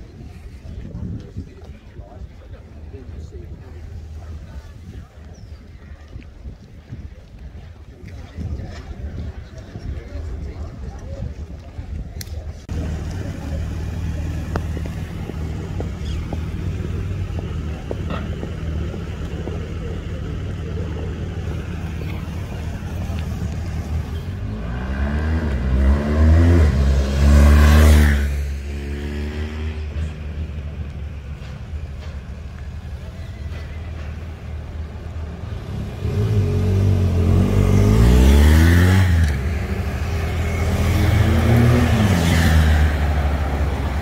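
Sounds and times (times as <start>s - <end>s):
low traffic rumble: 0.0s - 44.0s
car engines accelerating past: 12.7s - 31.2s, 35.4s - 44.0s.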